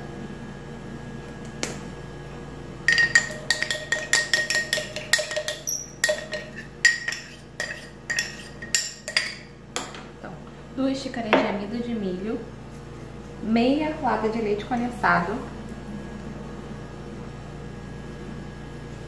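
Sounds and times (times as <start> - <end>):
spoon clinking in glass cup: 2.9 - 9.9.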